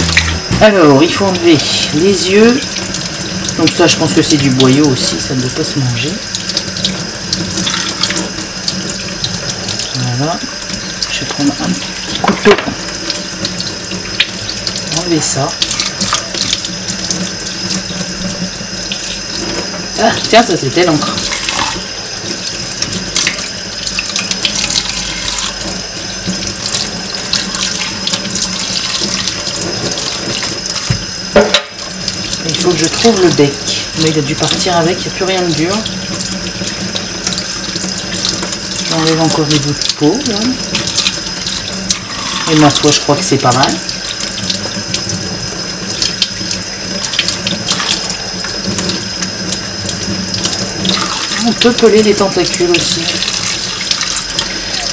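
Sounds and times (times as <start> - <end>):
tap running into steel sink: 12.1 - 14.8, 24.1 - 32.2.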